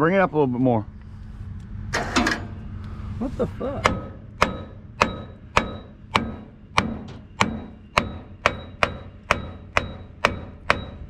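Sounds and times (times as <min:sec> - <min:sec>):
hammer striking steel cylinder: 0:03.8 - 0:11.0.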